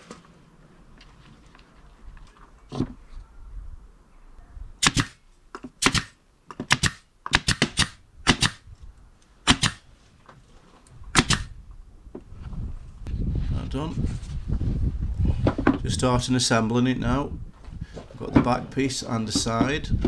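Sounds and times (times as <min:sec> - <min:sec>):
nail gun shots: 0:04.8 - 0:08.6, 0:09.4 - 0:09.8, 0:11.1 - 0:11.5.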